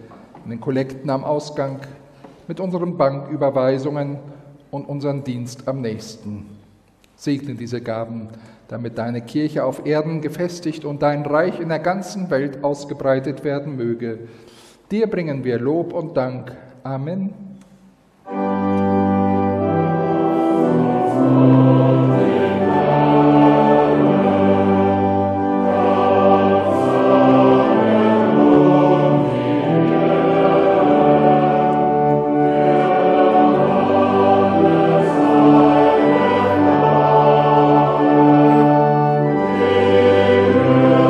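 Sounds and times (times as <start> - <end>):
choir singing a hymn: 18.3 - 41.0.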